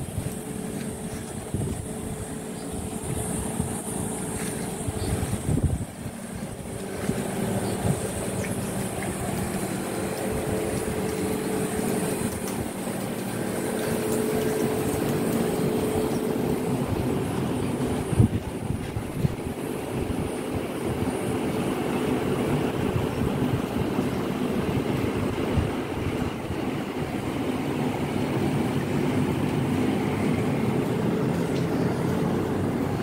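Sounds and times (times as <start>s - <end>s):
noisy rumble: 0.0s - 21.3s
mechanical hum with low tones: 0.0s - 33.0s.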